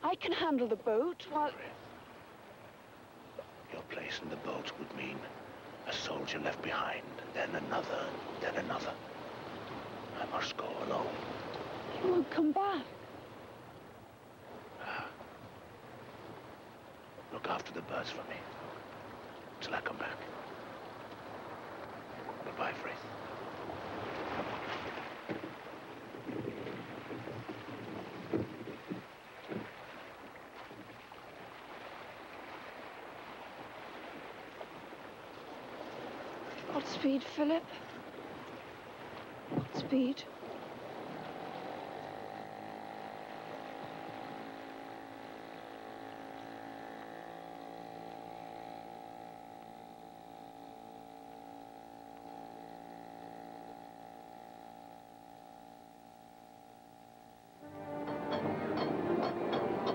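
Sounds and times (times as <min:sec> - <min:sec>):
water lapping: 0:00.0 - 0:59.9
wind: 0:00.0 - 0:59.9
light knocks on boat: 0:24.8 - 0:29.8
sustained orchestral chord: 0:41.8 - 0:59.9.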